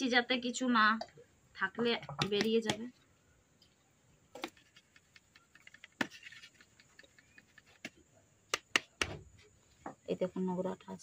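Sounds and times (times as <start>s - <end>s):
hand sieve tapping and ticking: 2.0s - 2.9s, 4.3s - 9.2s.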